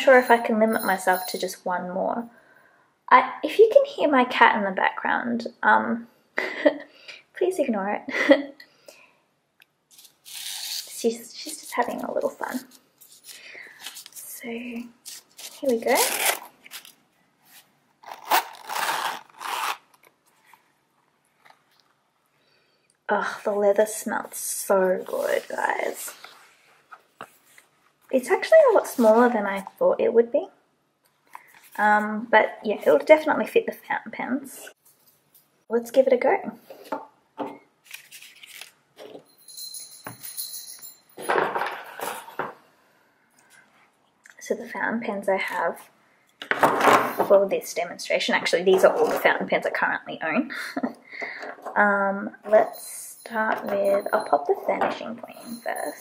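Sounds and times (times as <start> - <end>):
high metallic jingle: 0.0 - 1.5, 39.3 - 41.2, 52.5 - 56.0
packaging rustling and crinkling: 9.9 - 22.0, 37.8 - 38.8.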